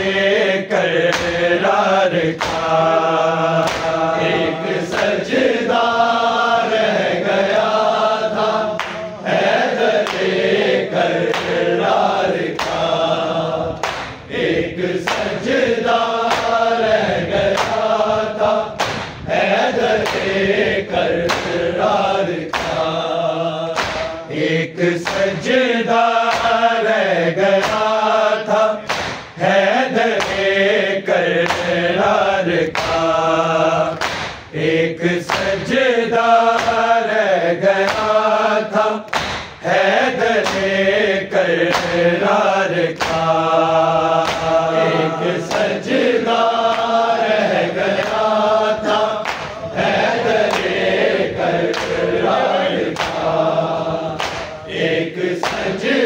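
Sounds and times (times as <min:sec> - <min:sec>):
men chanting a lament in unison: 0:00.0 - 0:56.0
sharp rhythmic strikes: 0:01.0 - 0:05.2, 0:09.9 - 0:14.4, 0:15.0 - 0:16.8, 0:17.5 - 0:19.3, 0:20.0 - 0:30.8, 0:31.4 - 0:34.6, 0:37.8 - 0:45.8, 0:51.7 - 0:54.8.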